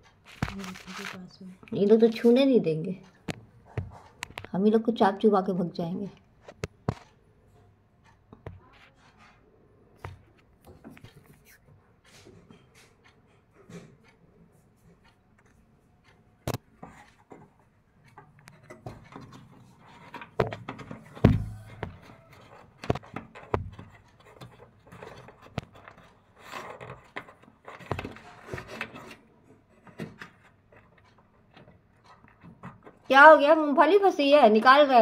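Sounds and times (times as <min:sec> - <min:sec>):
monkey scraping window frame: 0:16.8 - 0:33.3
loud thump: 0:21.2 - 0:21.7.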